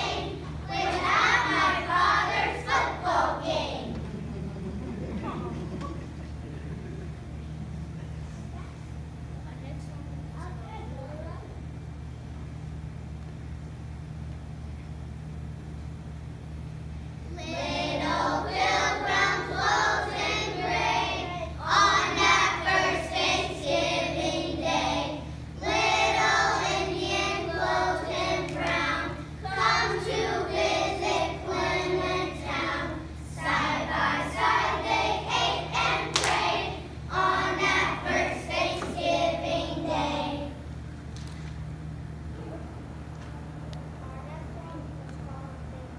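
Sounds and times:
children singing together: 0:00.0 - 0:04.0, 0:17.4 - 0:40.6
steady low hum: 0:00.0 - 0:45.9.

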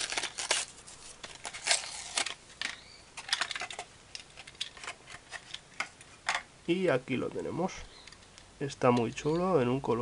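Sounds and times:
plastic packaging clicks and crackles: 0:00.0 - 0:06.4.

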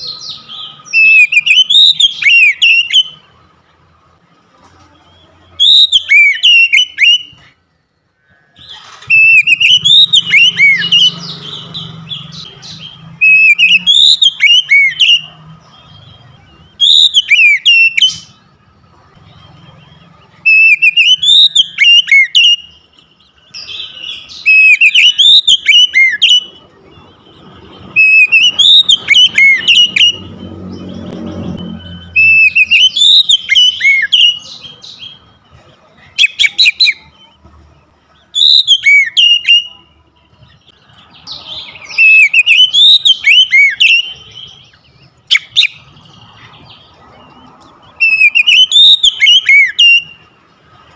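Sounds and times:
bird singing whistled phrases: 0:00.0 - 0:03.3, 0:05.1 - 0:07.6, 0:08.6 - 0:18.4, 0:20.4 - 0:27.3, 0:27.9 - 0:35.3, 0:36.2 - 0:37.4, 0:38.2 - 0:39.9, 0:40.5 - 0:45.9, 0:47.9 - 0:50.4.

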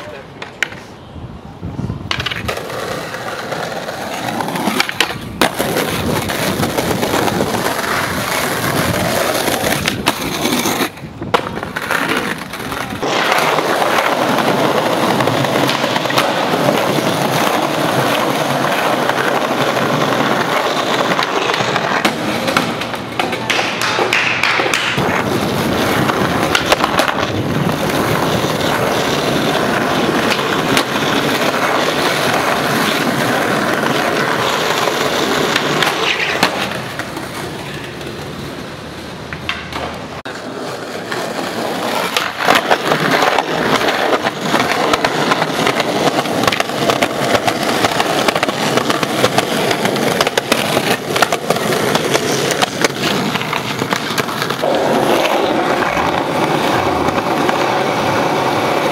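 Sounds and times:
skateboard clacking on ground: 0:00.0 - 0:01.1, 0:01.9 - 0:58.9
skateboard wheels rolling on concrete: 0:00.0 - 0:58.9.

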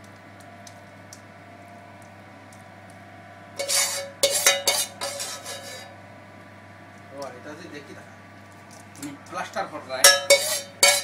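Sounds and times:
metal cookware clattering: 0:03.6 - 0:05.9, 0:10.0 - 0:11.0.

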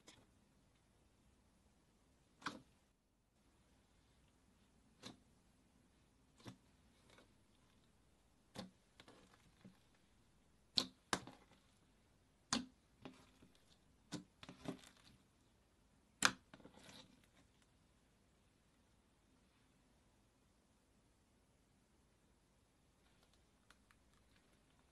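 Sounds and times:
faint slime crackling: 0:05.9 - 0:15.5, 0:23.0 - 0:24.9.

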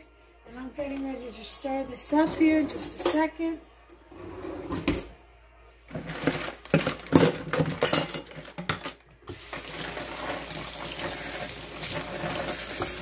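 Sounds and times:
dishes and utensils clattering: 0:02.1 - 0:03.3, 0:05.9 - 0:13.0
tap water running into sink: 0:09.3 - 0:13.0.

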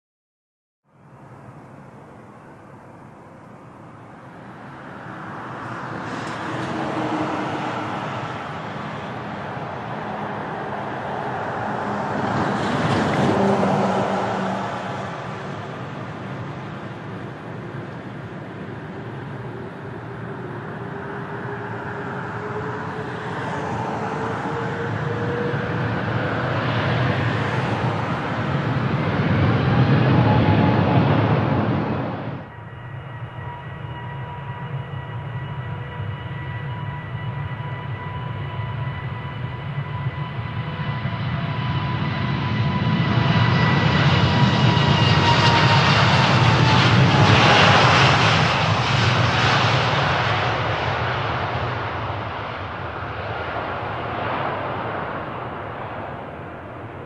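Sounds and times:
jet engines roaring: 0:01.5 - 0:57.0.

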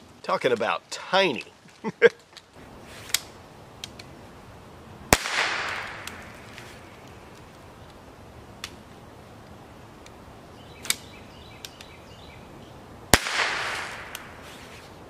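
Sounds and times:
rifle shot: 0:05.1 - 0:06.4, 0:13.1 - 0:14.4.

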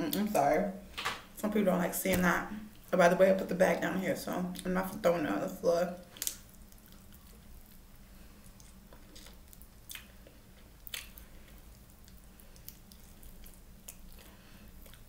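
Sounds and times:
person biting and chewing: 0:08.5 - 0:15.0.

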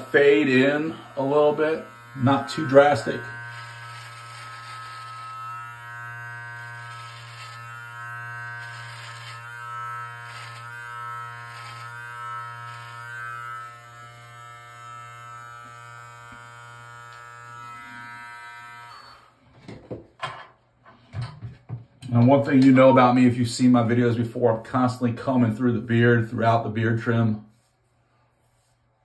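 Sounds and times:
beard trimmer buzzing: 0:00.0 - 0:19.4
trimmer rasping through hair: 0:00.0 - 0:19.4.

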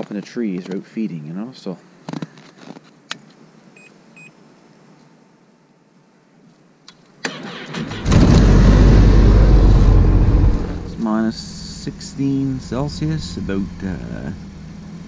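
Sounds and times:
snowmobile engine starting and running: 0:07.3 - 0:15.0.

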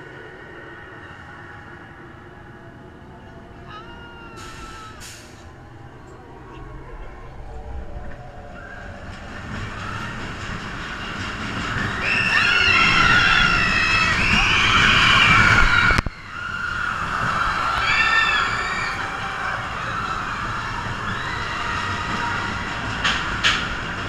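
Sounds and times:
roller coaster rumbling on track: 0:00.0 - 0:24.0
riders screaming: 0:11.8 - 0:23.0.

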